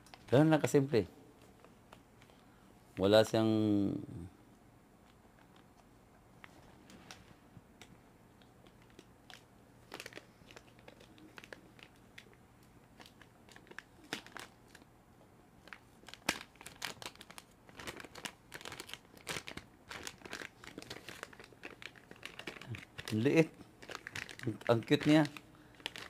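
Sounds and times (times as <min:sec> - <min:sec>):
plastic bag crinkling: 0:08.6 - 0:12.3, 0:12.9 - 0:14.8, 0:15.6 - 0:26.0.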